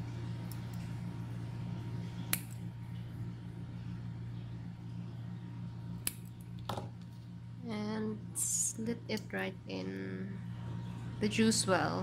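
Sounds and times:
steady low hum: 0:00.0 - 0:12.0
small scissors snipping: 0:02.3 - 0:02.6, 0:06.0 - 0:06.4.

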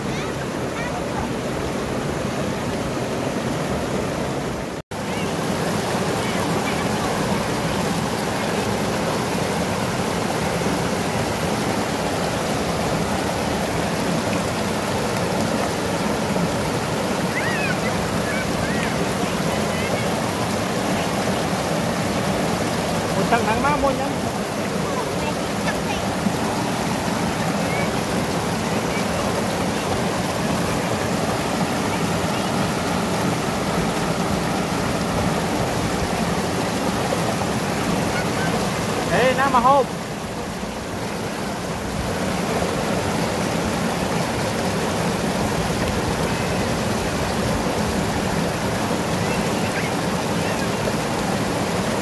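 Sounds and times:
river rapids roaring: 0:00.0 - 0:52.0
whitewater rushing over rocks: 0:00.0 - 0:52.0.

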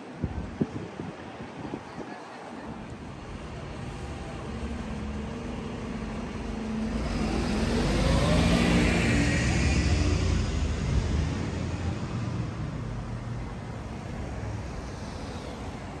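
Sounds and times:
car driving past: 0:04.9 - 0:13.0.

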